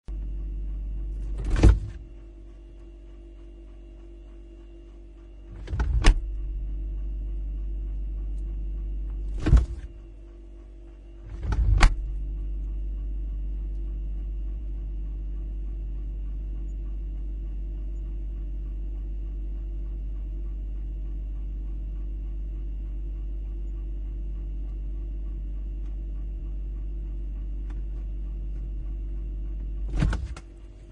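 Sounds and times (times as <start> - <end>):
refrigerator hum: 0.0 - 30.9
refrigerator door opening: 1.2 - 2.0, 5.5 - 6.4, 9.2 - 10.0, 11.2 - 12.1, 29.8 - 30.6
refrigerator door shutting with knock: 1.3 - 2.1, 5.6 - 6.3, 9.3 - 10.0, 11.3 - 12.2, 29.9 - 30.5.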